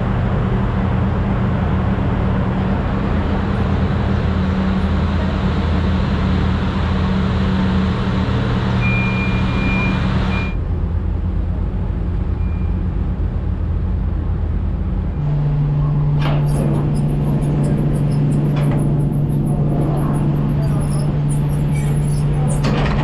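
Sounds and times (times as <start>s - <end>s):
heavy rushing noise: 0.0s - 23.0s
low engine drone: 0.0s - 23.0s
high electronic beep: 8.8s - 10.6s.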